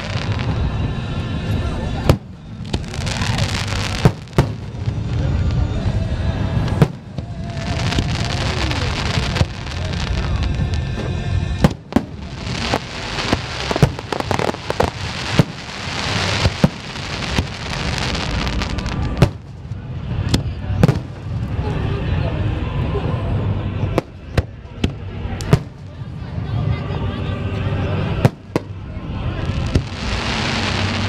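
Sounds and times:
fireworks crackle and rumble: 0.0 - 31.0
fireworks shells bursting: 8.0 - 19.6.

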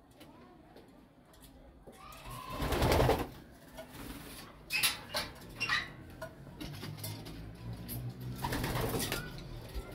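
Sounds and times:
pigeons clicking on wire mesh: 6.6 - 9.9.

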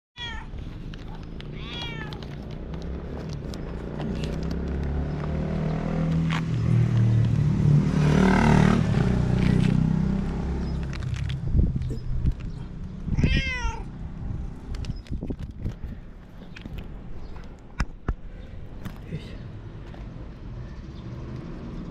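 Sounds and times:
cat meowing: 0.2 - 0.6, 1.5 - 2.3, 13.1 - 13.9.

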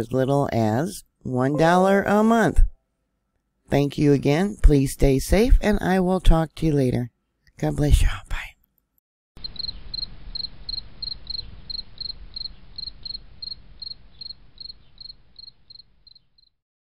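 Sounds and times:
cricket chirping: 9.4 - 16.6.

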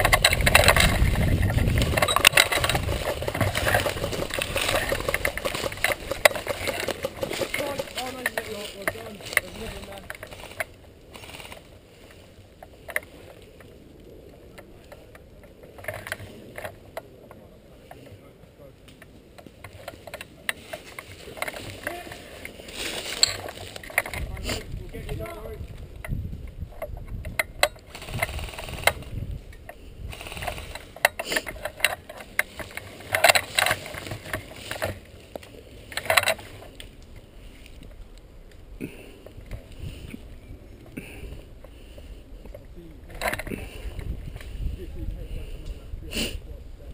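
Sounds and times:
gear rattling and clicking: 0.0 - 13.4, 19.6 - 38.0
footsteps crunching dry leaves: 1.6 - 12.4, 20.7 - 23.8
faint rustling: 19.0 - 45.8.

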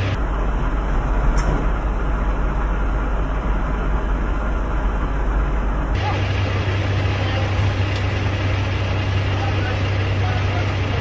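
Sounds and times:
diesel trucks idling: 0.0 - 11.0.

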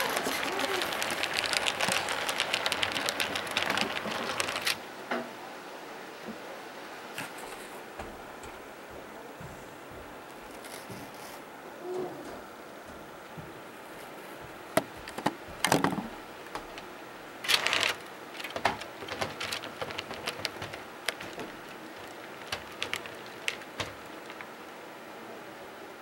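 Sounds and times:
model train wheels clicking and rattling: 0.0 - 4.8, 15.1 - 24.6
steady rolling hiss: 0.0 - 26.0.

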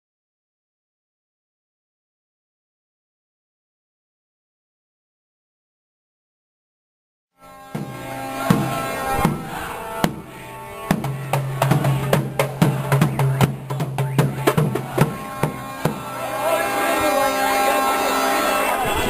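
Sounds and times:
marching drums beating: 7.8 - 16.3.

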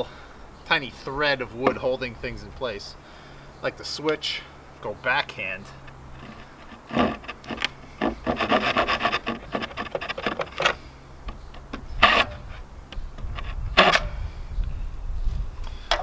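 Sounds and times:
hand saw cutting wood: 6.2 - 10.8, 12.0 - 12.6, 13.3 - 14.1.

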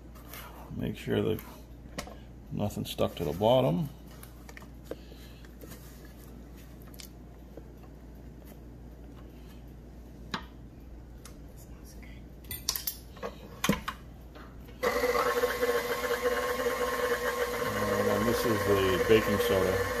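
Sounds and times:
stand mixer running with a whine: 14.8 - 20.0.

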